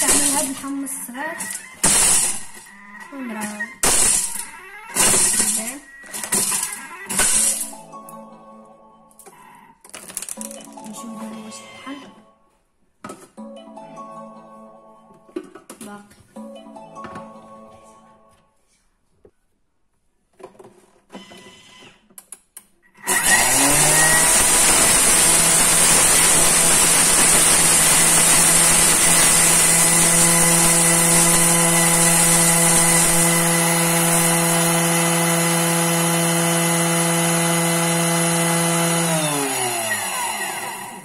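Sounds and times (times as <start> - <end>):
electric grinder whining: 0.0 - 0.7, 23.0 - 41.0.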